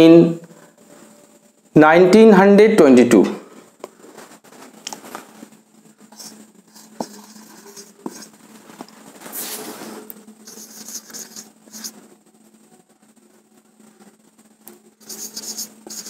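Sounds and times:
marker writing on whiteboard: 6.1 - 12.1, 15.0 - 16.0.

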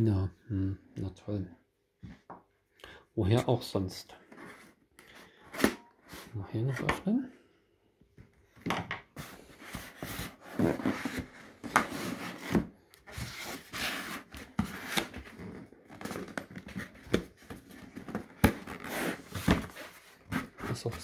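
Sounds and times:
hands scraping cardboard box: 9.2 - 17.0, 18.5 - 21.0.

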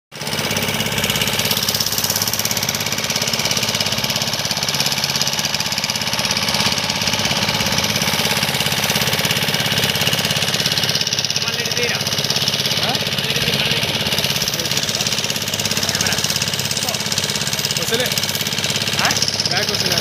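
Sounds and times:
boat motor chugging: 0.1 - 20.0.

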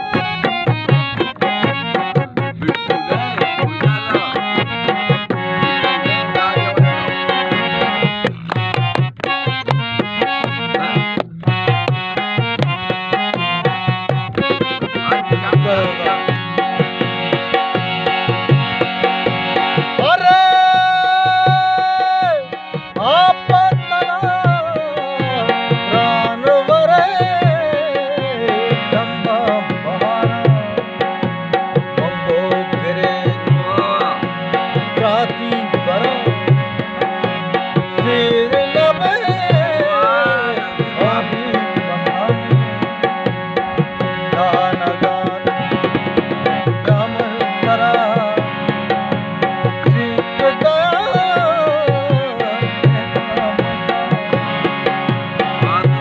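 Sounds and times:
man singing: 0.0 - 56.0
hand drum beat: 0.1 - 19.1.

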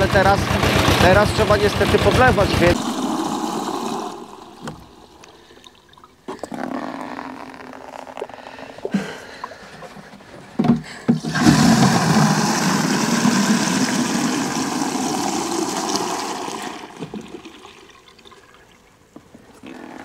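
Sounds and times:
water gushing into watering can: 2.2 - 6.3, 11.1 - 19.0.

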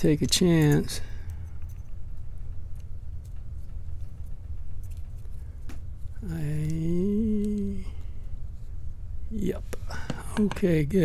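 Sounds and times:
steady low rumble: 0.0 - 11.0
man humming: 6.2 - 8.1.

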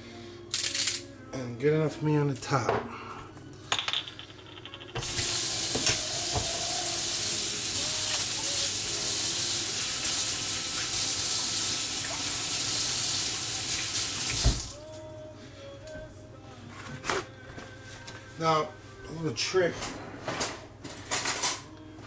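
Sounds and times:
faucet shutting off thump: 5.0 - 6.6, 14.3 - 14.7
faucet running into sink: 5.0 - 14.7.

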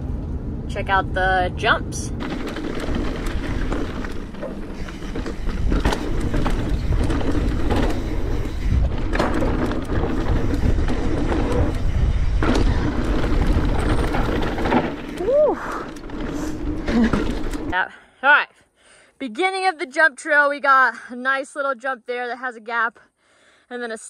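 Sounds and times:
bike rattling over bumps: 1.6 - 17.8
bike tyres on dirt: 2.1 - 17.8.

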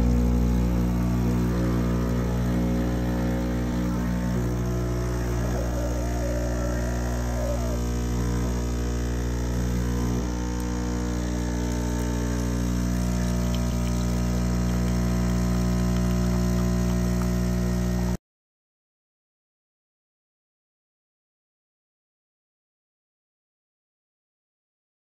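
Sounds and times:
espresso machine pump humming: 0.0 - 18.2
espresso pouring into cup: 0.1 - 17.8.

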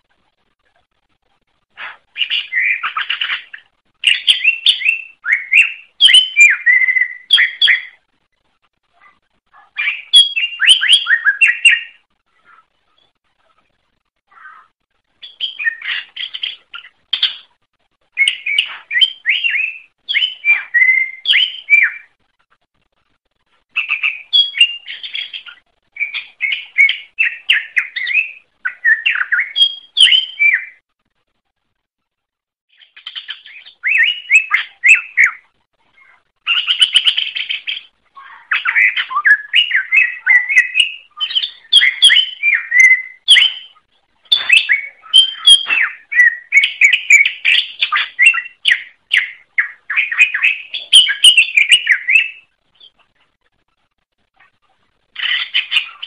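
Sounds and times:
bird singing whistled notes: 1.9 - 8.0, 9.8 - 13.2, 15.2 - 17.5, 18.1 - 22.2, 23.8 - 30.8, 32.8 - 35.4, 36.5 - 53.0, 55.2 - 56.0.

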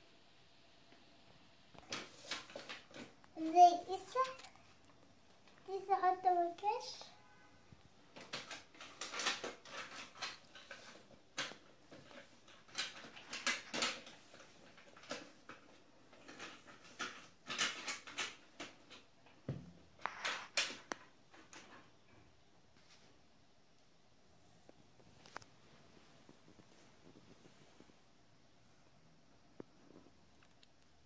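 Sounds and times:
plastic toy pieces clicking: 8.2 - 11.6.

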